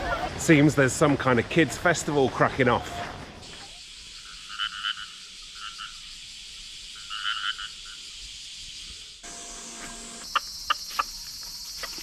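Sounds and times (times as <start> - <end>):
rasping croak-like animal calls: 4.3 - 6.0, 7.0 - 8.0.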